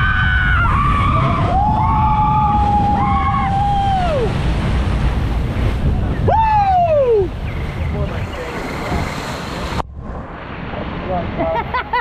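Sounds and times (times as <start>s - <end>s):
riders whooping: 0.0s - 4.5s, 6.1s - 7.4s
rush of wind and water: 0.0s - 12.0s.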